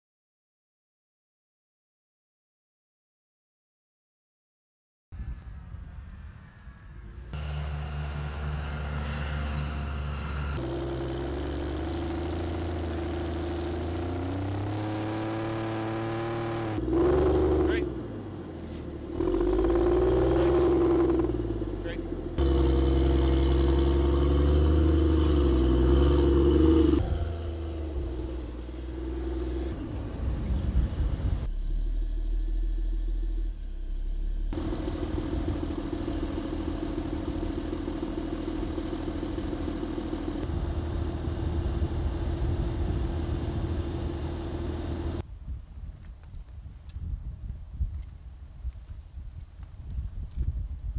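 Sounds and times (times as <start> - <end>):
diesel engines running: 7.2 - 45.2.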